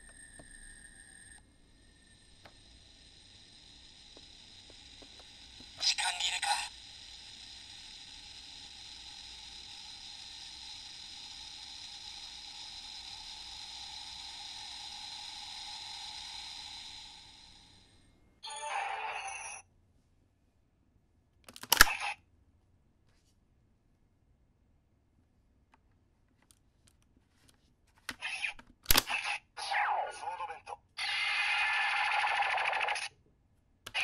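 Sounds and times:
toy steam hiss: 1.0 - 18.1, 28.2 - 33.1.

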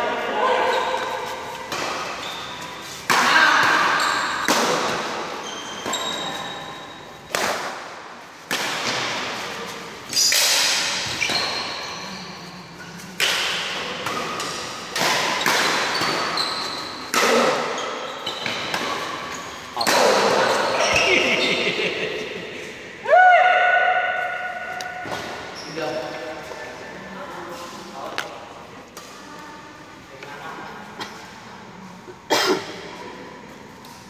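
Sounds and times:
rackets hitting shuttlecock: 0.7 - 6.5, 7.2 - 9.5, 10.1 - 11.8, 13.2 - 21.0
short high shoe squeaks: 2.2 - 2.8, 5.4 - 7.0, 11.1 - 13.0, 15.9 - 17.1.

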